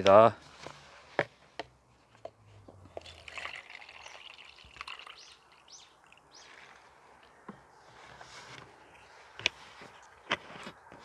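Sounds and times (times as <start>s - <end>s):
liquid pouring into plastic cup: 3.0s - 6.7s.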